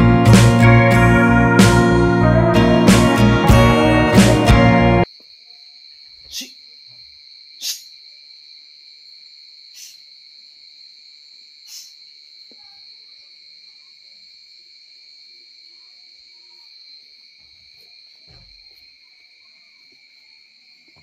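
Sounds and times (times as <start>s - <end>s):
crickets trilling: 5.0s - 21.0s.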